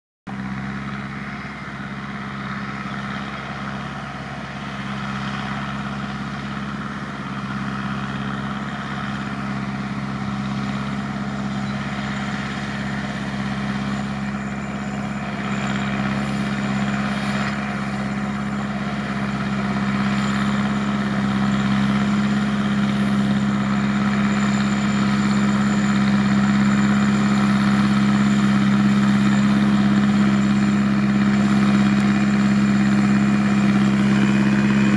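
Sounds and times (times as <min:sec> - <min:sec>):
tractor diesel engine running: 0:00.3 - 0:34.9.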